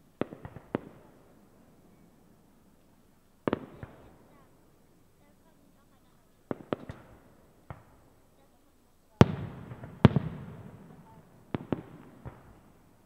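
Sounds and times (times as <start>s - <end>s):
firework shells bursting: 6.4s - 8.2s.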